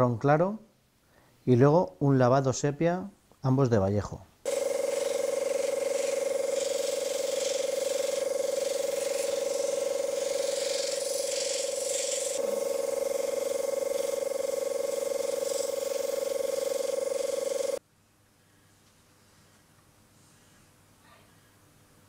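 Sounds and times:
airbrush compressor humming: 4.5s - 17.8s
airbrush hissing: 4.5s - 17.8s.

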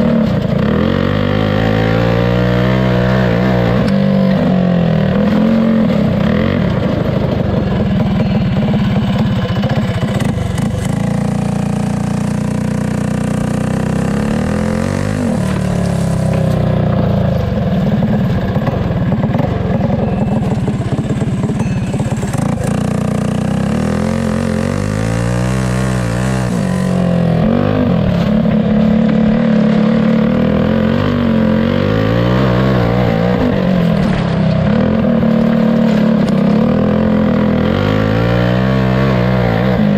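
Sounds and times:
go-kart engine running hard: 0.0s - 39.9s.

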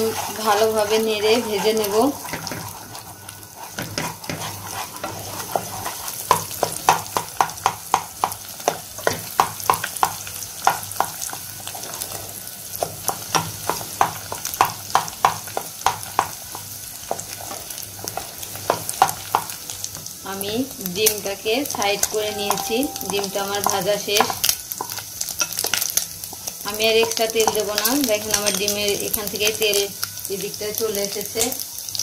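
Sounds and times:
spatula scraping taps: 0.0s - 11.4s
egg sizzling in oil: 0.0s - 32.0s.

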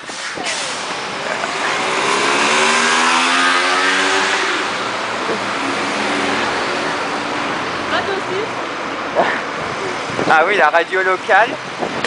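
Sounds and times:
street noise rush: 0.0s - 12.0s
vehicle engine accelerating: 0.6s - 8.6s.

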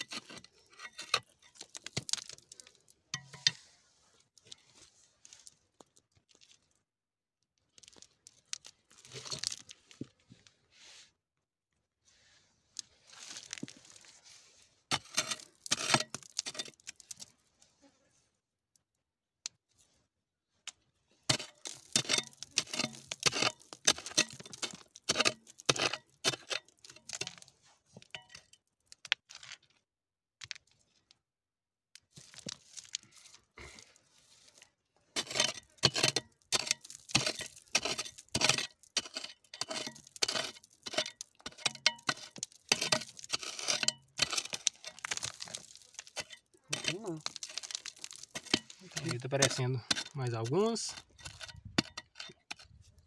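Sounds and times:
small stones cracking loose: 0.0s - 2.9s, 7.6s - 9.8s, 21.3s - 27.5s, 32.0s - 33.9s, 35.2s - 53.0s
pry bar scraping into clay: 0.0s - 3.6s, 14.9s - 17.3s, 21.3s - 27.5s, 34.6s - 53.0s.

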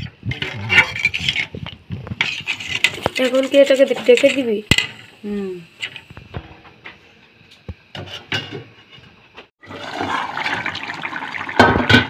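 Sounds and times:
curry boiling and bubbling: 0.0s - 6.8s, 9.6s - 12.0s.

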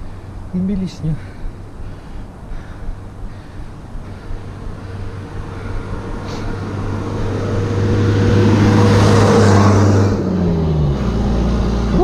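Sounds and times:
truck engine approaching: 1.4s - 12.0s.

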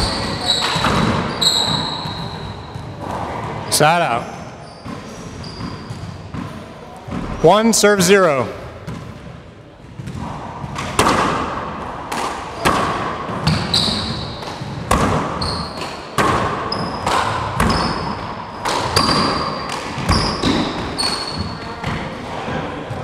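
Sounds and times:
sneakers squeaking on hardwood: 0.0s - 3.1s, 4.4s - 7.4s, 13.4s - 15.9s, 16.7s - 22.0s.

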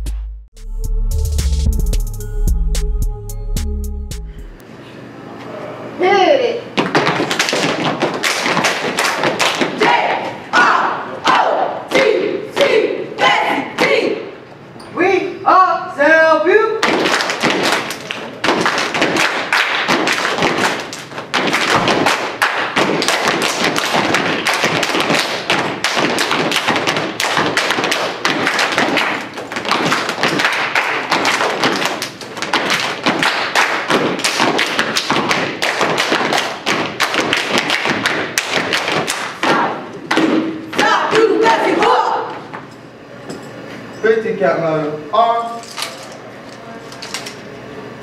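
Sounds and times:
hand claps: 6.8s - 9.9s, 16.8s - 39.4s
foot stomps: 6.8s - 10.4s, 16.8s - 42.7s.

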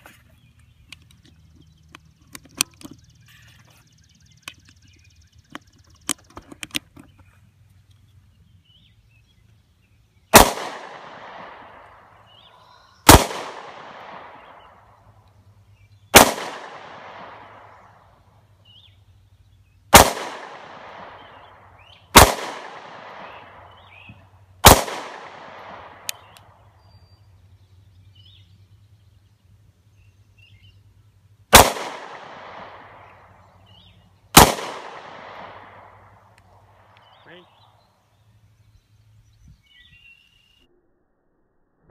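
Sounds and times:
handgun shots with echo: 10.3s - 11.8s, 13.1s - 14.6s, 16.2s - 17.6s, 19.9s - 21.3s, 22.1s - 23.5s, 24.6s - 26.3s, 31.5s - 32.9s, 34.3s - 35.9s.

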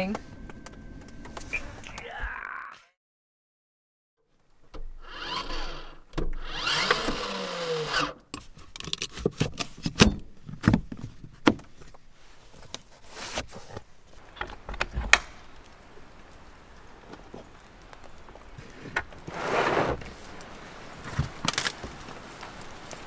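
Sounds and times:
scraping sliding sound: 19.3s - 20.0s.

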